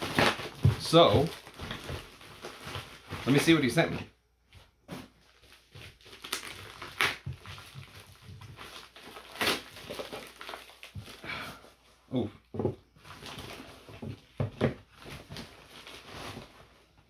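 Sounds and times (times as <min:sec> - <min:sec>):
packaging tearing: 0:00.0 - 0:03.5, 0:05.4 - 0:11.2
packaging rustling and crinkling: 0:00.0 - 0:04.1, 0:04.9 - 0:11.8, 0:12.9 - 0:17.0.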